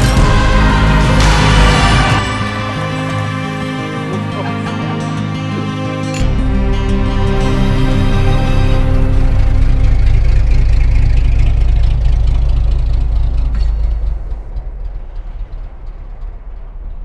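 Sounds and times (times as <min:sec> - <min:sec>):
car exhaust rumble pulling away: 0:05.8 - 0:17.0.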